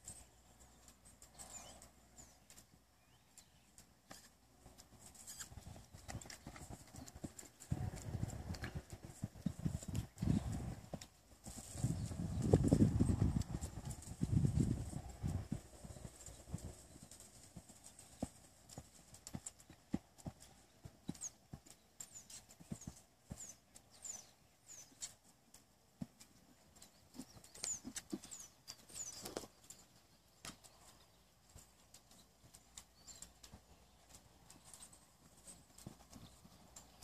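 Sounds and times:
hoofbeats on sand: 0:04.6 - 0:25.2, 0:30.5 - 0:37.0.

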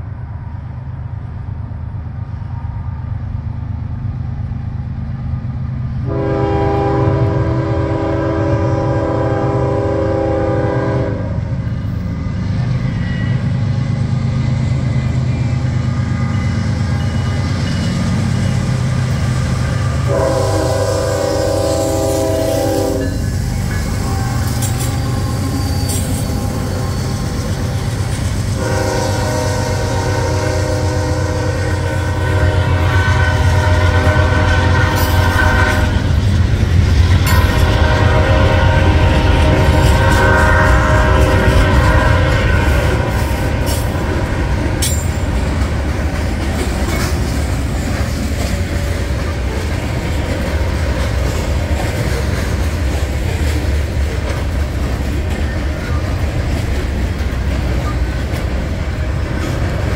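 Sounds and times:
train wheels on rails: 0:00.0 - 0:59.9
locomotive horn blasts: 0:06.1 - 0:11.4, 0:20.0 - 0:27.1, 0:28.6 - 0:36.1, 0:37.2 - 0:44.2.

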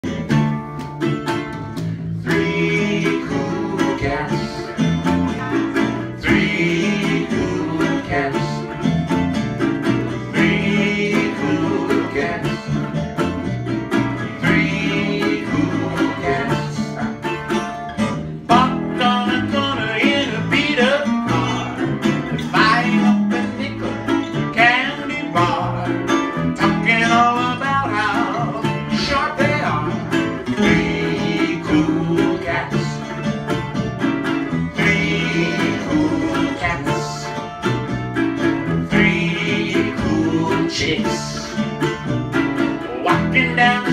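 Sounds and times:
acoustic guitar: 0:00.0 - 0:43.9
resophonic ukulele: 0:00.0 - 0:43.9
walking bass line: 0:00.0 - 0:43.9
man singing: 0:02.2 - 0:05.5, 0:06.1 - 0:08.9, 0:10.2 - 0:13.0, 0:14.3 - 0:17.3, 0:18.4 - 0:33.3, 0:34.7 - 0:37.6, 0:38.8 - 0:41.8, 0:42.8 - 0:43.9.

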